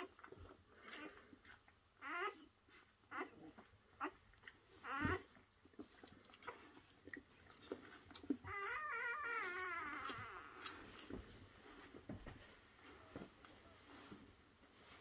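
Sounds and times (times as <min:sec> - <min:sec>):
puppies squeaking and whining: 0:02.0 - 0:11.2.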